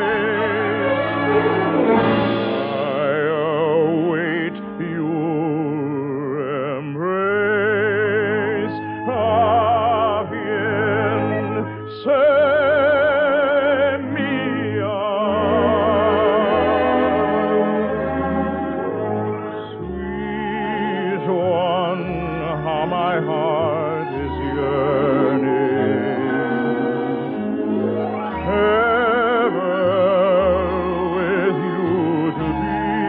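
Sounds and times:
orchestral accompaniment: 0:00.0 - 0:05.7, 0:07.6 - 0:33.0
tenor singing operatic song: 0:00.0 - 0:33.0.

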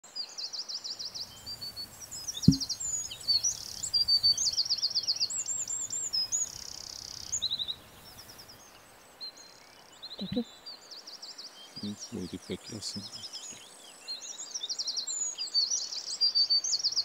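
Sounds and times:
songbirds singing: 0:00.1 - 0:17.0
sharp knock: 0:02.4 - 0:02.7.

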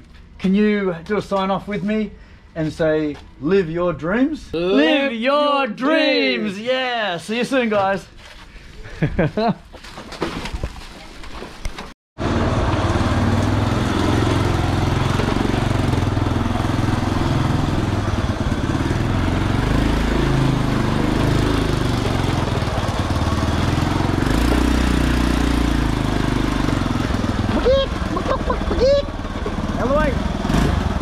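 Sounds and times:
small motorbike engine running: 0:12.2 - 0:31.0.

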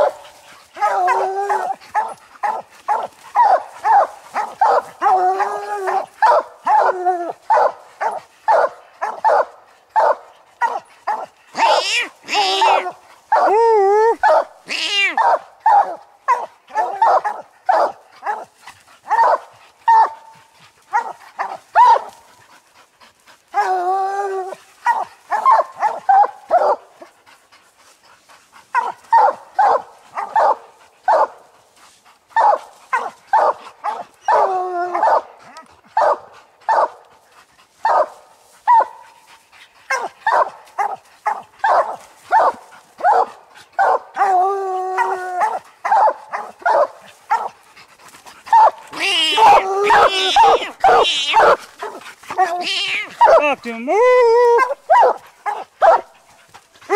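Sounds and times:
hounds barking: 0:00.0 - 0:13.6, 0:14.2 - 0:22.4, 0:24.5 - 0:27.2, 0:28.5 - 0:37.1, 0:37.7 - 0:56.9
hound bawls: 0:00.8 - 0:08.2, 0:10.6 - 0:18.4, 0:48.5 - 0:56.0.

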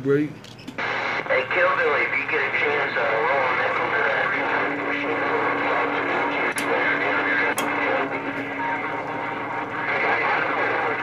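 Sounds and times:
radio static hiss and crackle: 0:00.8 - 0:11.0.

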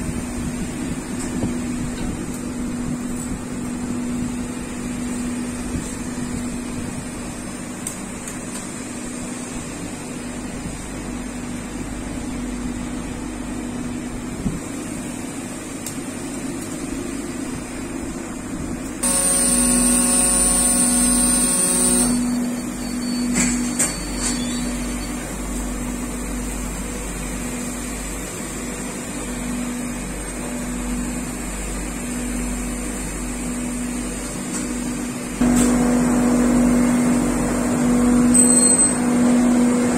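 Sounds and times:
machinery humming: 0:00.0 - 0:34.2
pulsing low tone: 0:19.0 - 0:23.0.

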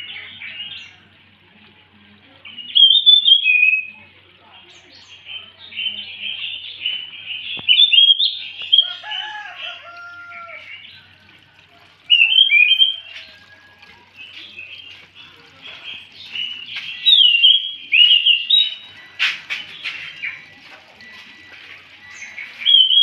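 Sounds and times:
thrush singing: 0:05.1 - 0:23.0.

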